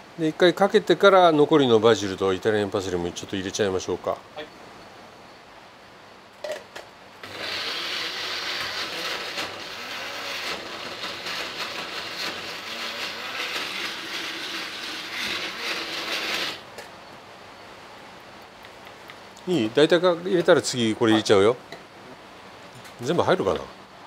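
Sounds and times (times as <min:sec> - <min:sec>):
blender motor chopping: 0:07.2 - 0:16.6.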